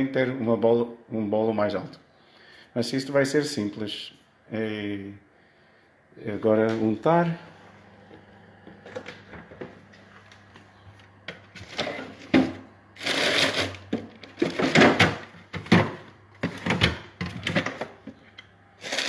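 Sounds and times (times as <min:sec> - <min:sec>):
frozen food tubs clattering: 0:11.4 - 0:18.0, 0:18.8 - 0:19.0
plastic bags rustling: 0:11.5 - 0:17.0.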